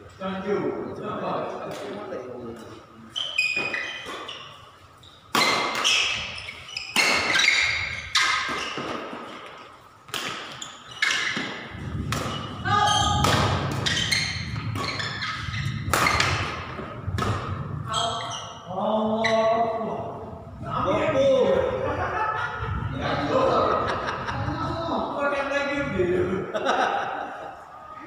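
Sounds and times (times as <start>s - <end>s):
rackets striking shuttlecock: 6.9s - 14.3s.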